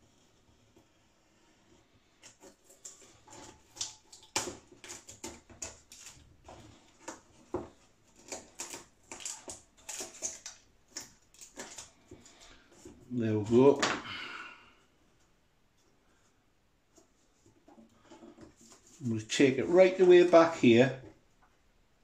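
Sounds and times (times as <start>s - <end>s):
balsa wood cracking and crunching: 2.4s - 14.1s.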